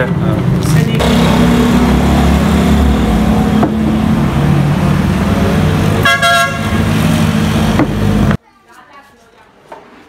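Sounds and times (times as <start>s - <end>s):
car engine driving past: 0.9s - 6.0s.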